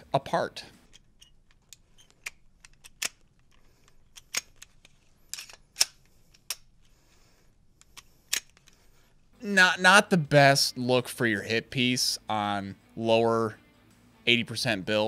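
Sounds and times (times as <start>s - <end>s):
pistol slide clicks and clacks: 0.8s - 6.8s, 7.8s - 8.8s.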